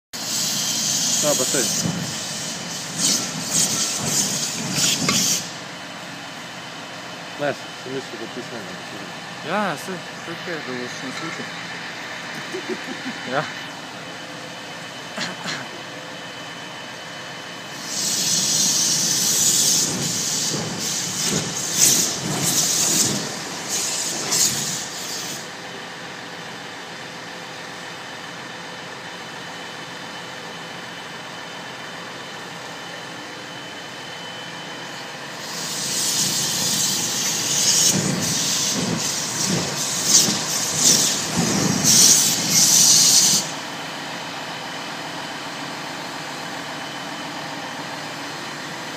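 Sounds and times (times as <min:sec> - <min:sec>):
gas jet flame hissing: 0:00.2 - 0:06.5, 0:17.6 - 0:25.6, 0:35.3 - 0:43.6.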